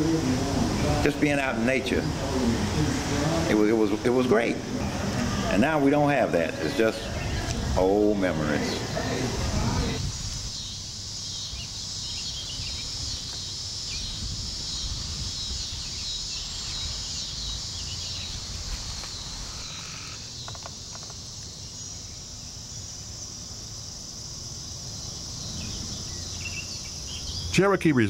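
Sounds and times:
insects chirring: 0.0s - 28.0s
bird chirps: 9.8s - 22.2s, 25.0s - 27.8s.

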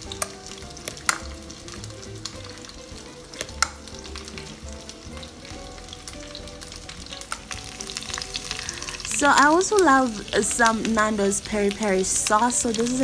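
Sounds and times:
steady sizzling hiss: 0.0s - 13.0s.

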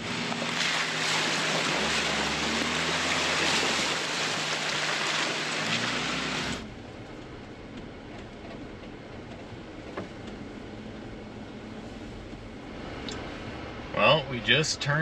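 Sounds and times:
tyre rolling through wet grass: 0.0s - 6.6s
car engine running low: 0.0s - 15.0s.

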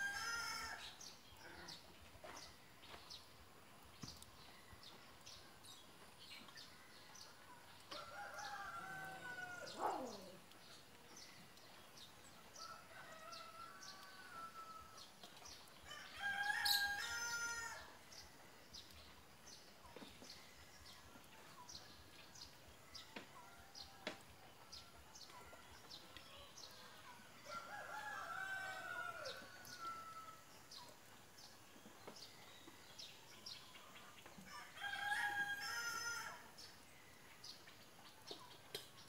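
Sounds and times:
small birds chirping: 0.6s - 39.0s
rooster crowing: 15.9s - 17.9s, 27.5s - 30.4s.

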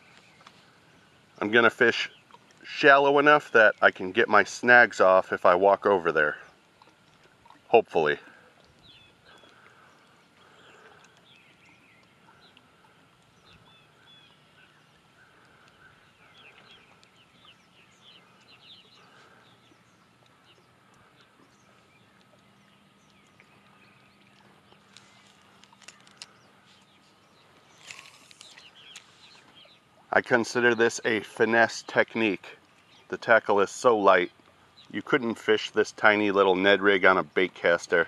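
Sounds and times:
birds chirping and calling: 6.1s - 38.0s
faint clicks: 8.3s - 13.7s, 15.2s - 17.5s, 20.1s - 29.6s.

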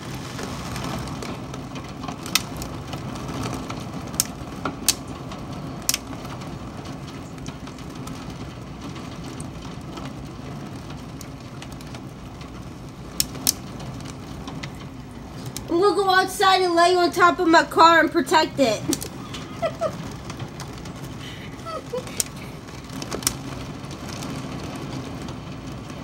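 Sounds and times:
hailstones knocking: 0.0s - 26.0s
heavy rain: 0.0s - 26.0s
wind: 0.0s - 26.0s.

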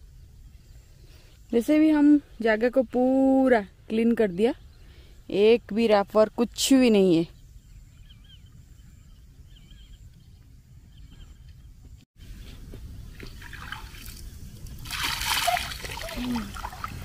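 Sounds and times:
quiet outdoor background: 0.0s - 17.0s
water pouring and splashing: 13.1s - 17.0s.

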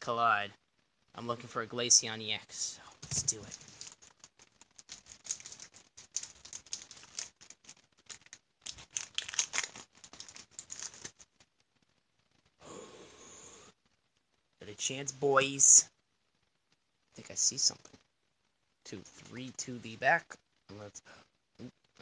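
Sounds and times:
foil wrapper crinkling and tearing: 3.0s - 11.5s.

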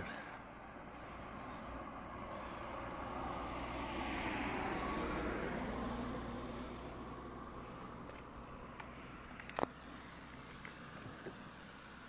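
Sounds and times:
vehicle passing by: 0.0s - 9.2s.

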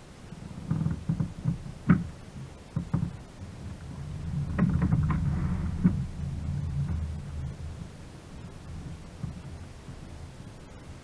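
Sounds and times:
steady low rumble: 0.0s - 11.0s
knocks on a kayak: 1.0s - 2.1s.

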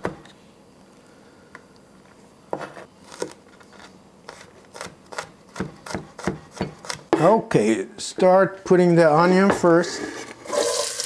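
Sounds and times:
knife chopping on wooden board: 4.7s - 7.3s.

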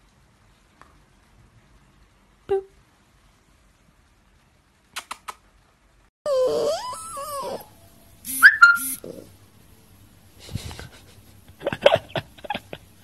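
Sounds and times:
puppy high-pitched squeals: 6.3s - 9.3s.

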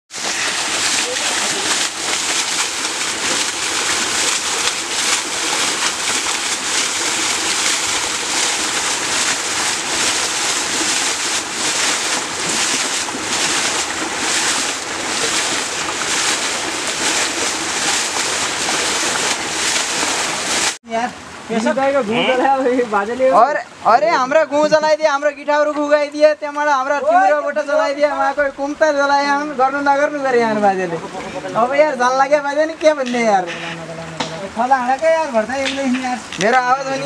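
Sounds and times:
water splashing: 0.1s - 26.1s, 29.2s - 37.0s.

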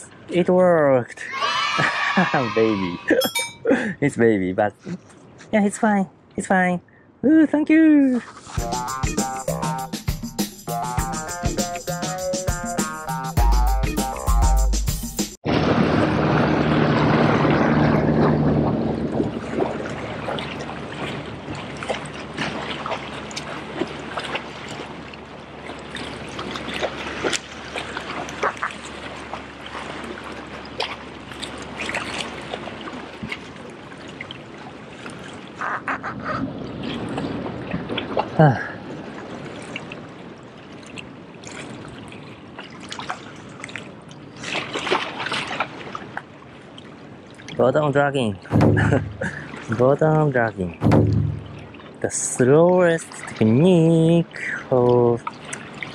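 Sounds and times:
low hum: 15.5s - 22.3s, 48.5s - 49.6s, 50.8s - 52.0s
water lapping against rocks: 15.5s - 55.9s
small splashes and ticks: 16.9s - 35.7s, 39.2s - 47.6s, 54.4s - 55.9s.

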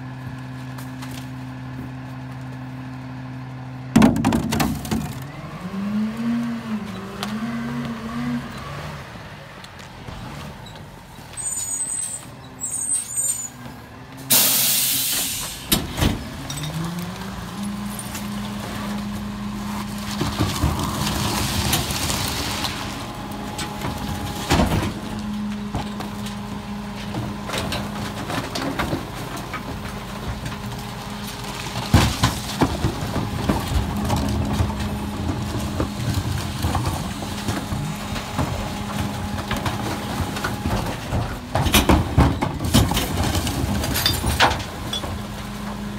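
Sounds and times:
plastic bins banging against hopper: 3.9s - 5.3s, 31.8s - 45.3s
air brakes hissing: 14.3s - 15.8s.

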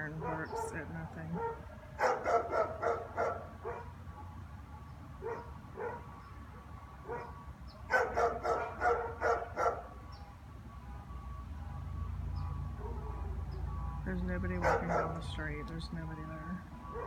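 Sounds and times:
dogs barking: 0.0s - 4.4s, 5.2s - 10.0s, 12.6s - 13.7s, 14.5s - 15.4s.

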